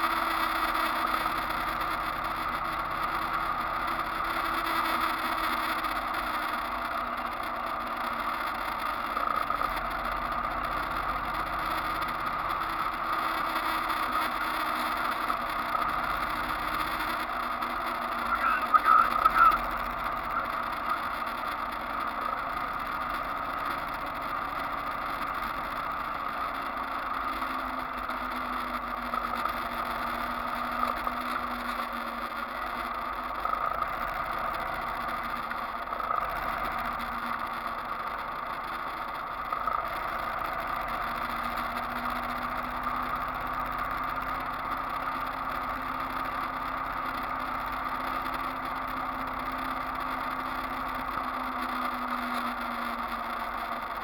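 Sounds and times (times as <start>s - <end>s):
vehicle engine and road noise: 0.0s - 54.0s.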